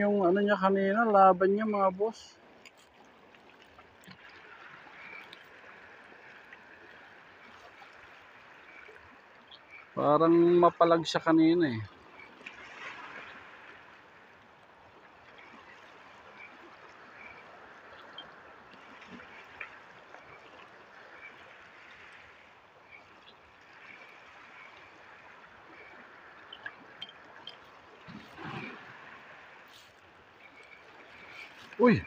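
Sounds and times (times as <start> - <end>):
small waves lapping: 0.0 - 32.0.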